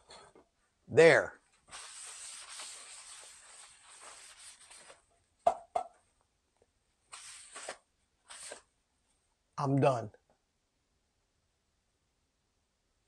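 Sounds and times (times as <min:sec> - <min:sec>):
paper towel wiping a pan: 0:01.7 - 0:05.0, 0:07.1 - 0:08.6.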